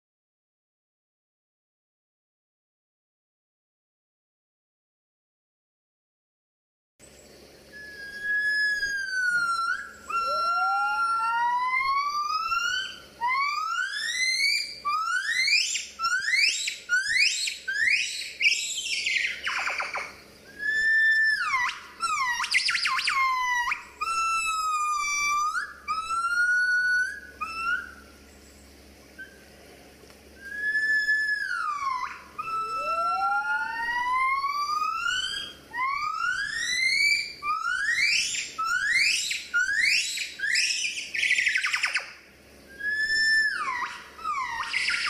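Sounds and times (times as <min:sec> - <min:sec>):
gibbons singing: 0:07.8 - 0:28.3, 0:30.4 - 0:45.0.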